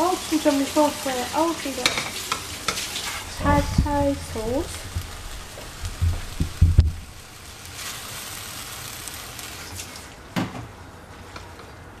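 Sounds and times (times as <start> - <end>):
noodles sizzling in a pan: 0.0 - 12.0.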